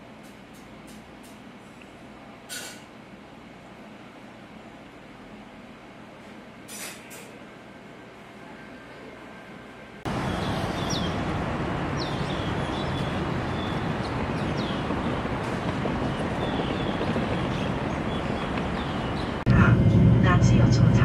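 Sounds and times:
traffic hum: 10.0 - 21.0
small birds chirping: 10.2 - 11.2, 12.0 - 15.2, 16.0 - 19.4.

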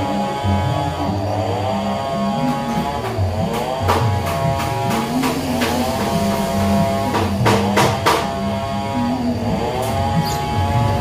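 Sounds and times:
background music with percussion: 2.3 - 8.8.

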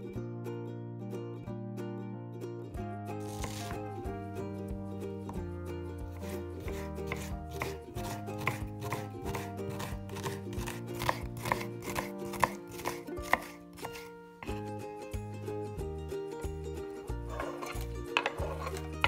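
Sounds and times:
knife chopping on wooden board: 3.2 - 4.0, 6.1 - 14.6.

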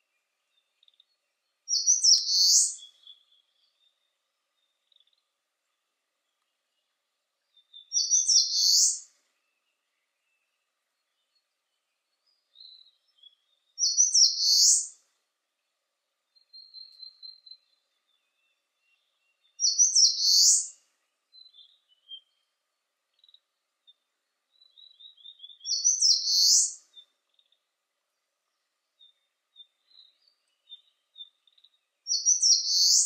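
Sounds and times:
warbler singing: 0.0 - 15.0, 16.2 - 33.0
faint bird calls: 0.8 - 3.5, 7.6 - 9.2, 12.6 - 15.0, 19.6 - 20.8, 24.6 - 27.6, 29.0 - 33.0.

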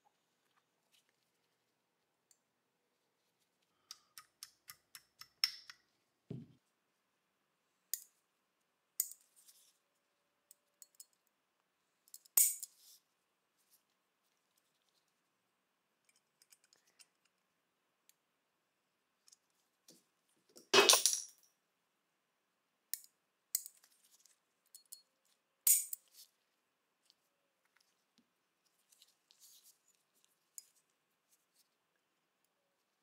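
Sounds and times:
small metal clicks and clinks: 10.8 - 11.3, 16.0 - 17.4, 24.7 - 25.1, 25.7 - 26.1.

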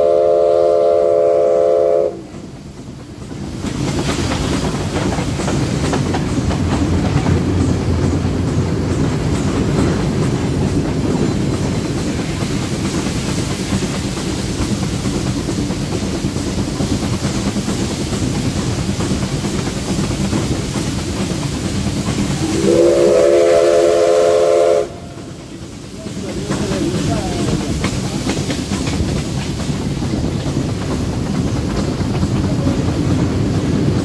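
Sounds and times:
steam whistle blast: 0.0 - 2.3, 22.4 - 25.3
train rumble and wheel clatter: 0.0 - 34.0.

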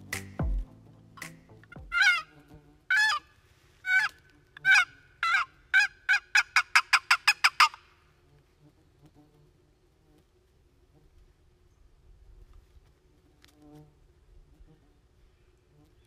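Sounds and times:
turkey call yelps: 1.8 - 2.3, 2.9 - 3.3, 3.9 - 7.9.

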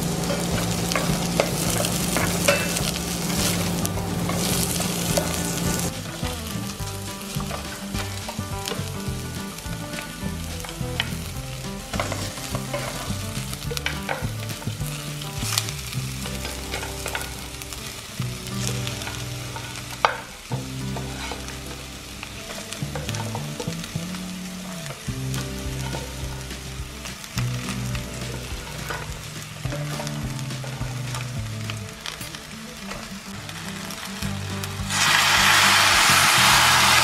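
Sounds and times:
onion frying in oil: 0.0 - 37.0
spoon stirring and scraping pot: 0.2 - 6.6, 11.9 - 17.4, 20.9 - 21.8.

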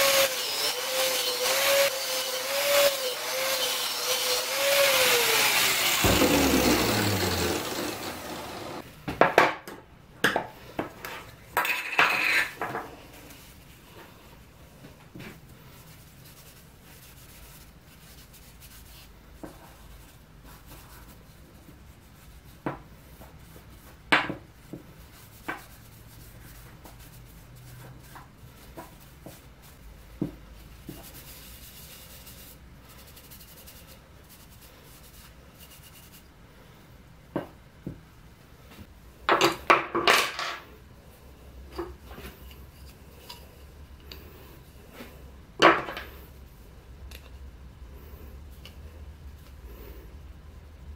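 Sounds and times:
rag rubbing wood: 3.2 - 8.8.

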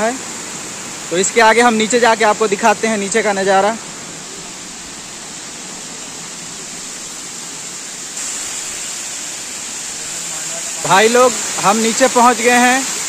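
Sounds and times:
waterfall rushing: 0.0 - 13.0.

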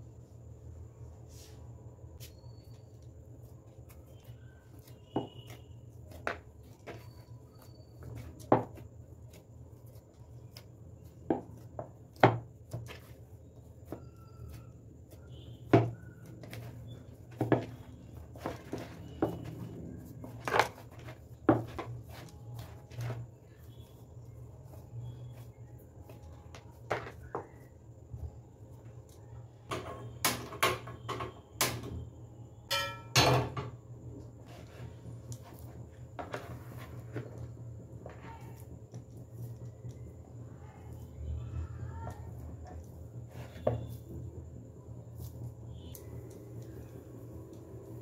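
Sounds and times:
dough knocks and slaps: 8.0 - 13.2, 13.8 - 23.6.

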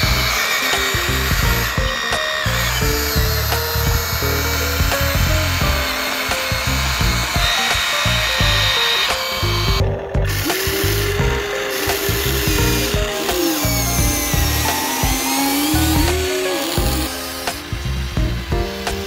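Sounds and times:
music with steady beat: 0.0 - 19.0
small motor whirring: 0.0 - 19.0.

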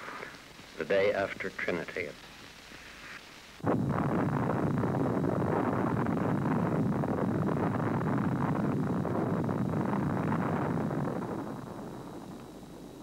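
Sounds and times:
huge explosion rumbling: 3.6 - 12.3.

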